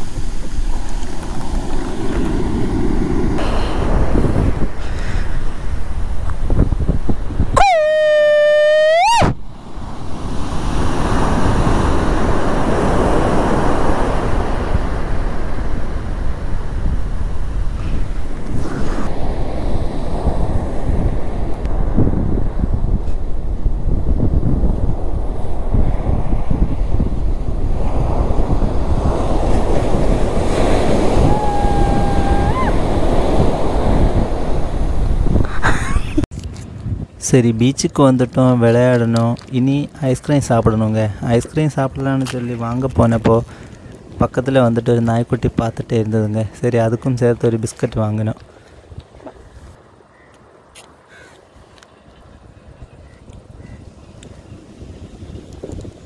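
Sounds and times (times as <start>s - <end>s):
waves breaking on shore: 0.0s - 36.3s
wind on microphone: 0.0s - 37.7s, 51.1s - 56.0s.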